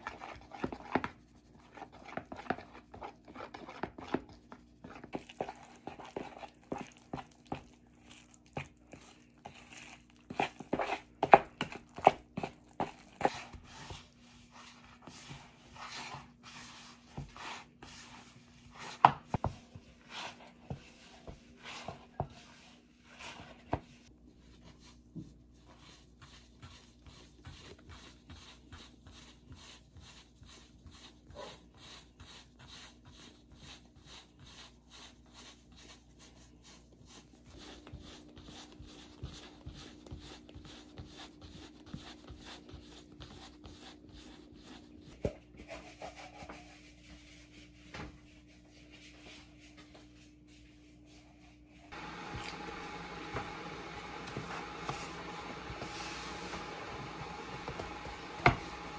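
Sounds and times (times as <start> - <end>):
rubbing or scraping strokes: 45.6 - 58.9.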